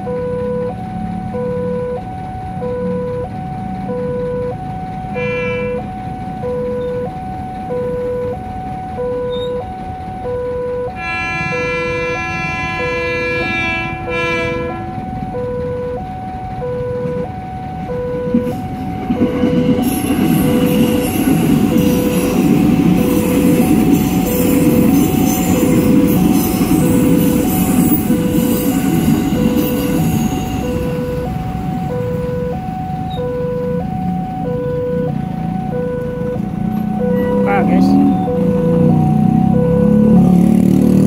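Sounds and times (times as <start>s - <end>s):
level crossing alarm two-tone: 0.0s - 40.8s
electric train rumble and wheel noise: 0.0s - 41.0s
train horn: 5.1s - 5.8s, 11.0s - 15.0s.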